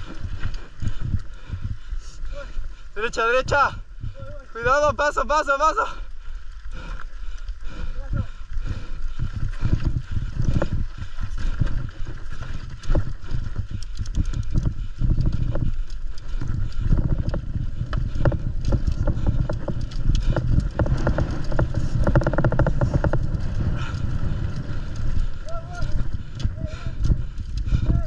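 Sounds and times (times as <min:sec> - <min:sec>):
wind buffeting microphone: 0:00.0 - 0:28.0
bike rattling over bumps: 0:05.7 - 0:28.0.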